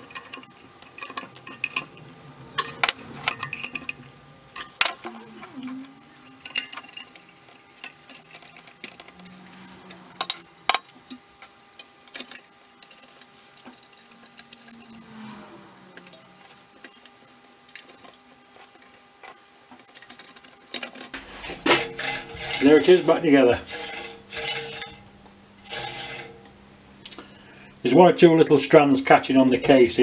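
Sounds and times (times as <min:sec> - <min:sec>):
metal wheel guard clicking: 0:00.0 - 0:15.1.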